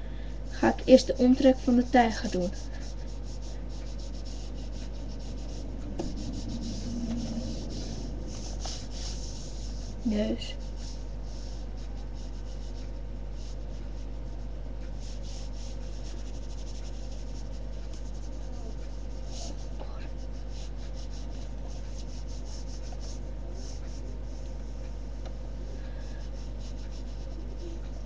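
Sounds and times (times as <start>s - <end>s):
low electrical hum: 0.0s - 28.0s
pen scratching on paper: 0.6s - 24.8s, 26.0s - 28.0s.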